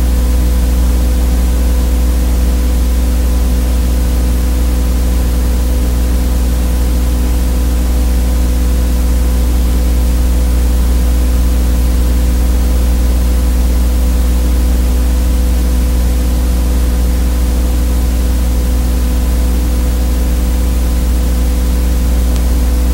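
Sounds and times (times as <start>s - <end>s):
electrical mains hum: 0.0s - 22.9s
constant hiss: 20.4s - 22.9s.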